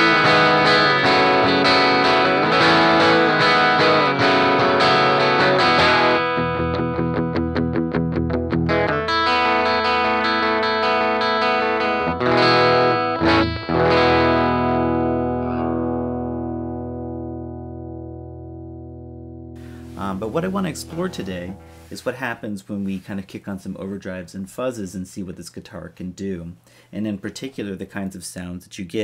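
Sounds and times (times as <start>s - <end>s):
jangly electric guitar: 0.0s - 22.2s.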